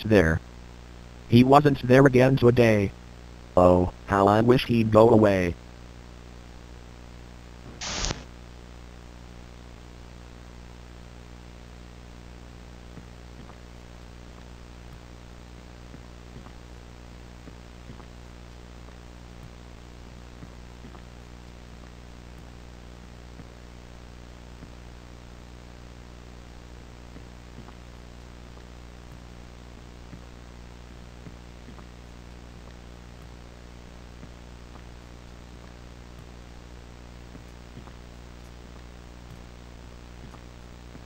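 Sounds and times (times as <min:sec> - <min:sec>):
low hum: 0:00.0 - 0:41.0
faint crackles: 0:07.6 - 0:08.4, 0:11.8 - 0:41.0
loud burst of noise: 0:07.7 - 0:08.3
hiss: 0:07.8 - 0:08.3.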